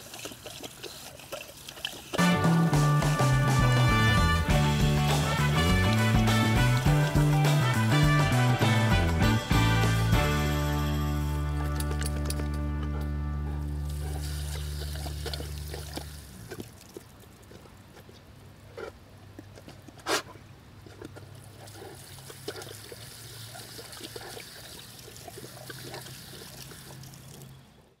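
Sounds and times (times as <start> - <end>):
dog lapping and splashing: 0.0 - 8.0, 13.0 - 27.6
background music: 2.2 - 13.9.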